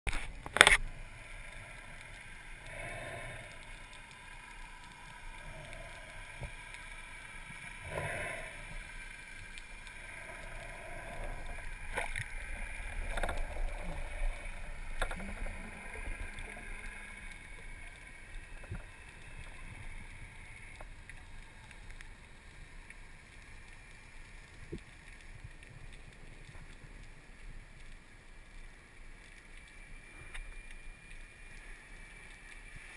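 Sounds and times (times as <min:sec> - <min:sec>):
underwater water noise: 0:00.1 - 0:32.9.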